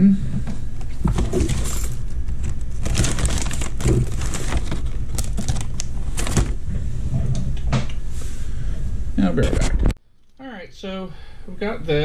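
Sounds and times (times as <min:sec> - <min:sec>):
steady low hum: 0:00.0 - 0:12.0
small objects rustling and clattering: 0:01.0 - 0:06.6.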